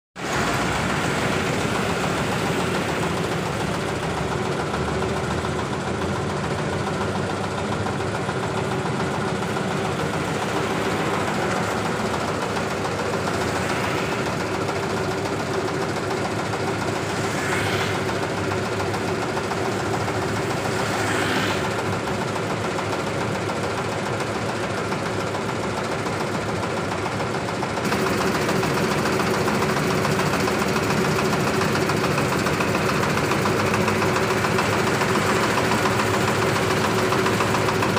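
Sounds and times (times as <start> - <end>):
thresher engine idling with knocking: 0.2 - 37.9
vehicles passing: 8.9 - 23.2.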